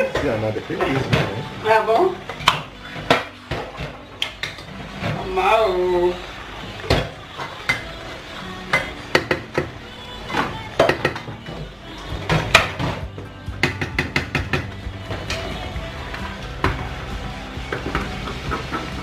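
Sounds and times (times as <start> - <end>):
background music: 0.0 - 19.0
wooden spoon knocking on pot: 13.6 - 14.8.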